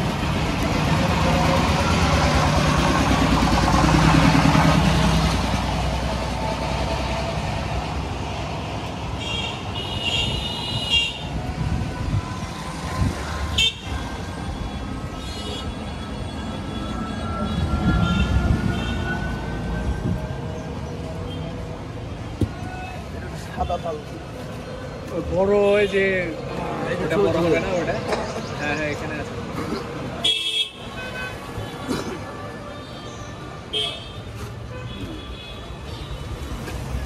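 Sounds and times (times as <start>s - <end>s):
car horns tooting: 30.2s - 31.9s.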